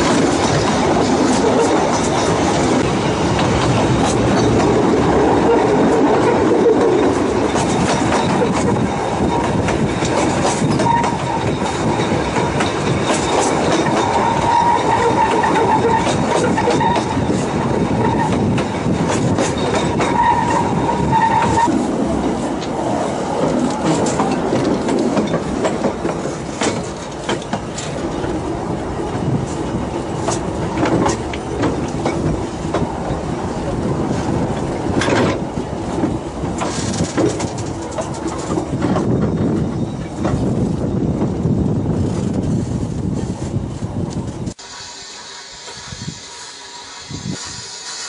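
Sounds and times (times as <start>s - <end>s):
rail joint clicks: 0.0s - 48.0s
train wheels rumbling: 0.0s - 48.0s
high wheel squeal: 10.3s - 21.8s.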